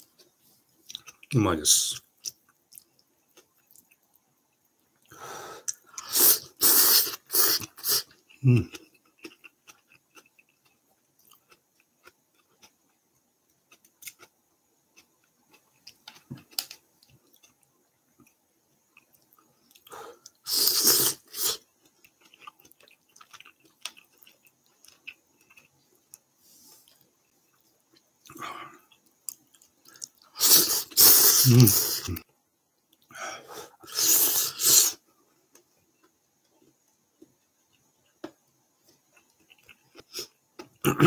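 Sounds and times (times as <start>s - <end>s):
person chewing ramen: 0.1s - 1.3s, 2.2s - 32.2s, 33.7s - 41.0s
loud slurp: 6.0s - 8.1s, 20.5s - 21.6s, 30.4s - 32.1s, 33.8s - 35.0s.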